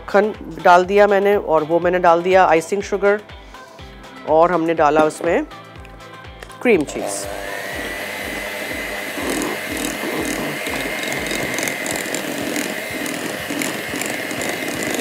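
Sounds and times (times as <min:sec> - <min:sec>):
electric hand mixer whining: 0:06.8 - 0:15.0.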